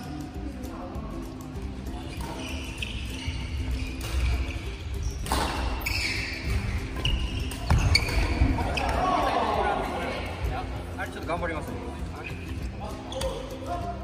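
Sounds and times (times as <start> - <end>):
faint background music: 0.0 - 14.0
shoes squeaking on wooden floor: 2.0 - 9.0.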